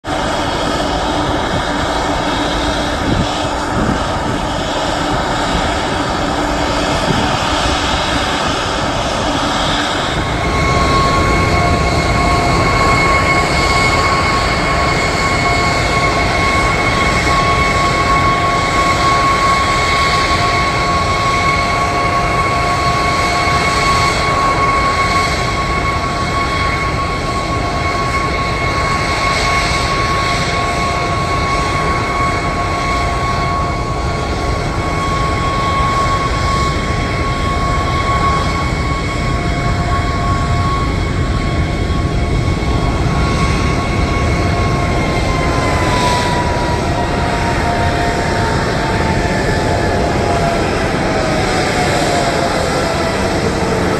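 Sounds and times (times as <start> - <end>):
jet engines running: 0.0 - 53.9
high-pitched whine: 0.1 - 53.9.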